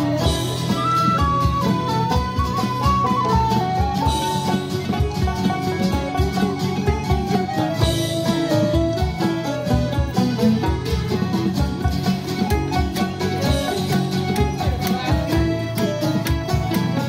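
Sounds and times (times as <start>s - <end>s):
lead melody line: 0.0s - 17.0s
steady drum beat: 0.0s - 17.0s
strummed guitars: 0.0s - 17.0s.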